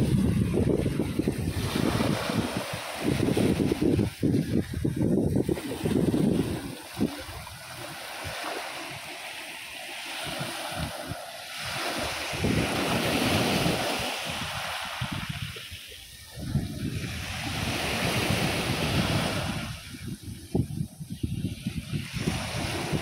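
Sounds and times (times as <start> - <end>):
wind buffeting microphone: 0.0 - 9.4, 10.0 - 23.0
waves breaking on pebbles: 0.2 - 15.8.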